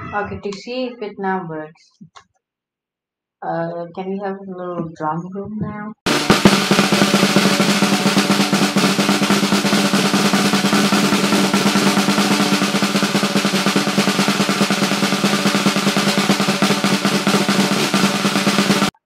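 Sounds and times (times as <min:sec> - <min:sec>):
snare drum roll: 0:06.1 - 0:19.0.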